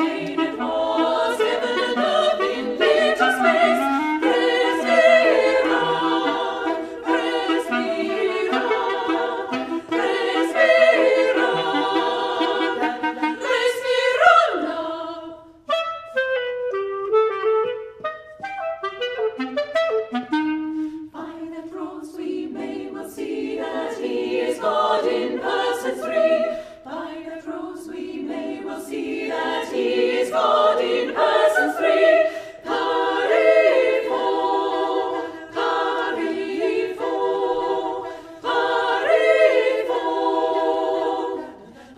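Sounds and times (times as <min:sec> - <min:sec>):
clarinet: 0:00.0 - 0:14.5, 0:15.5 - 0:21.5
women's choir singing: 0:00.0 - 0:15.7, 0:21.0 - 0:41.9.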